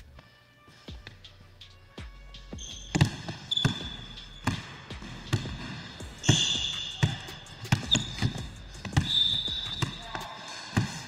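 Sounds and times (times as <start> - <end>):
sneakers squeaking: 2.5 - 11.0
basketball bouncing on wood floor: 2.6 - 10.2.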